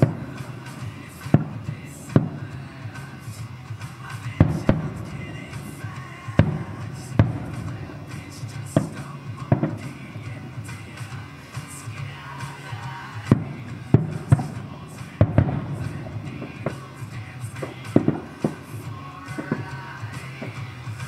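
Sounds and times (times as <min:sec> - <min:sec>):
fireworks bursting: 0:00.0 - 0:21.0
music playing: 0:00.0 - 0:21.0.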